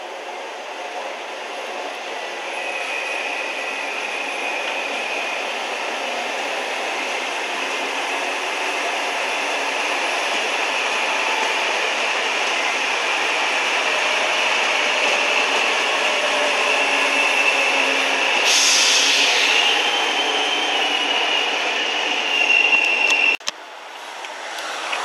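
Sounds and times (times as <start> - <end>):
train wheels rushing on rails: 0.0 - 25.0
high squeal: 2.2 - 6.2, 13.8 - 23.4.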